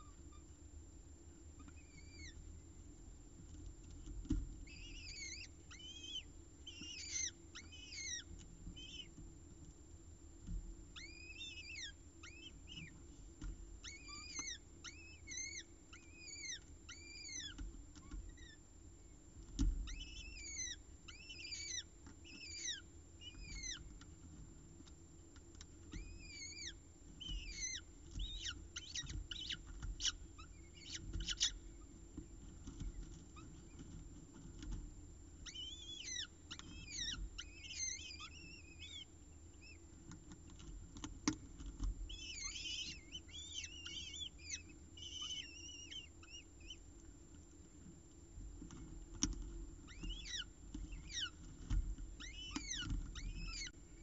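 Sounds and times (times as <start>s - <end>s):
faint steady hum: 0.0s - 54.0s
chicks begging calls: 1.5s - 2.6s, 4.6s - 9.2s, 10.9s - 13.0s, 13.8s - 19.2s, 19.8s - 24.0s, 25.9s - 32.0s, 35.4s - 40.0s, 42.0s - 47.0s, 49.8s - 51.4s, 52.1s - 54.0s.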